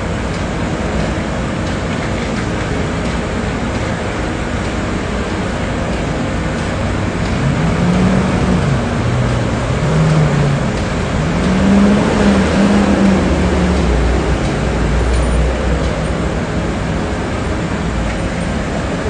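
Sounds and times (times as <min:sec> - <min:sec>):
passing vehicle engines: 0:00.0 - 0:19.0
heavy low rumble: 0:05.2 - 0:19.0.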